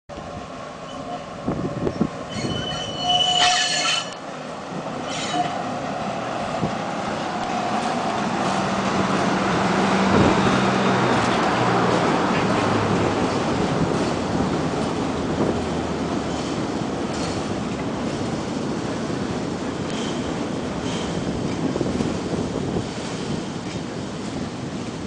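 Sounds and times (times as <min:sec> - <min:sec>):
train rumble with low engine: 0:00.1 - 0:25.0
train wheels squealing: 0:00.8 - 0:01.3, 0:01.9 - 0:04.2, 0:05.0 - 0:05.6.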